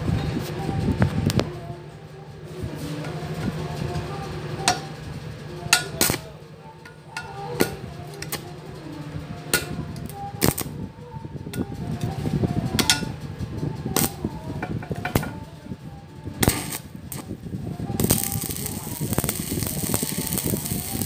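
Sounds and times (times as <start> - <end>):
welding arc crackling: 5.7 - 6.4, 7.2 - 10.8, 14.0 - 15.3, 16.3 - 21.0.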